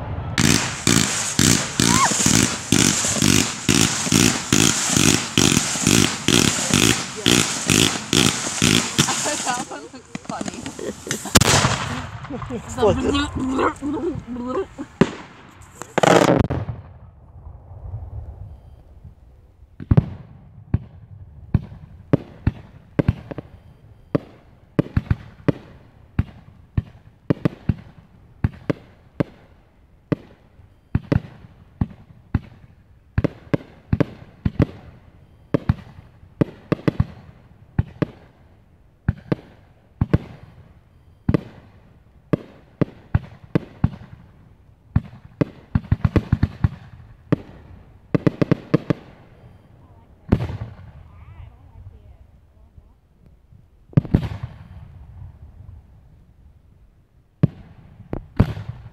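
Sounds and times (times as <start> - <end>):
fireworks boom with rumbling tail: 0.0 - 29.4, 44.9 - 52.0, 53.4 - 58.9
fireworks sharp bangs: 0.0 - 52.1, 53.9 - 55.5, 57.4 - 58.9.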